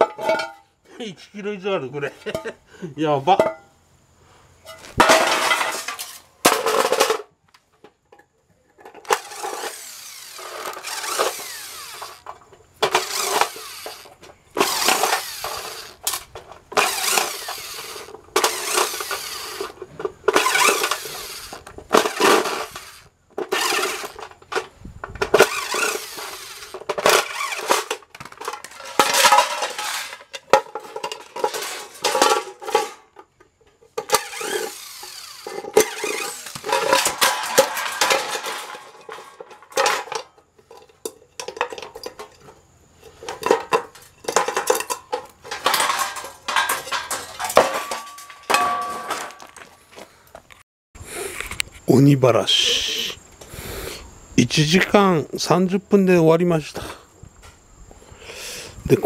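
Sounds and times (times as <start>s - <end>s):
electric drill running: 9.2s - 12.3s, 12.9s - 16.0s, 16.8s - 19.8s, 20.4s - 24.2s, 25.4s - 27.8s, 34.1s - 36.8s.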